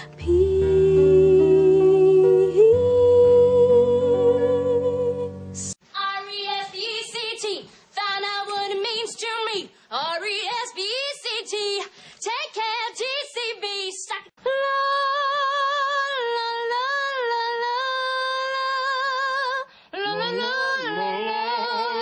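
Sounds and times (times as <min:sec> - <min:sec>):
woman singing: 0:00.0 - 0:22.0
man singing: 0:20.0 - 0:22.0.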